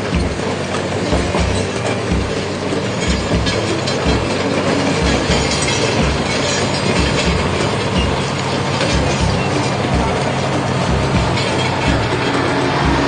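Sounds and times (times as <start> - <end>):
diesel engine running: 0.0 - 13.0
steel tracks clanking: 0.0 - 13.0.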